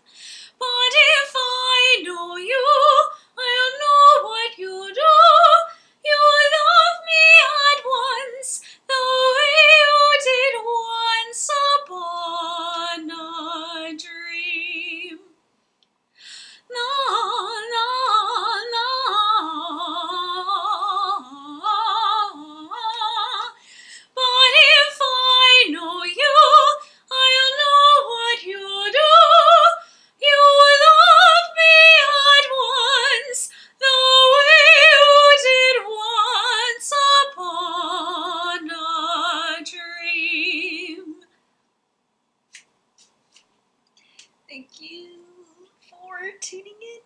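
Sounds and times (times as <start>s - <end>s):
woman breathing: 0.0s - 0.6s, 8.6s - 8.9s, 16.1s - 16.7s, 23.6s - 24.2s, 29.8s - 30.2s, 33.5s - 33.8s
woman singing soprano: 0.6s - 15.3s, 16.7s - 41.3s, 44.5s - 47.0s.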